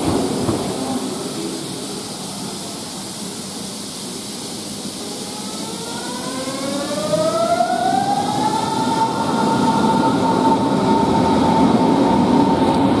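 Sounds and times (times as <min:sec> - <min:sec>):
wheels rumbling on rail: 0:00.0 - 0:13.0
electric train motor whine: 0:04.4 - 0:13.0.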